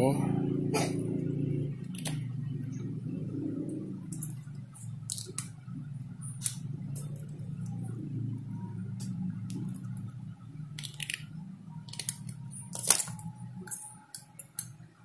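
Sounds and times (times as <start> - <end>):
low hum: 0.0 - 15.0
pliers snipping wire: 11.9 - 14.7.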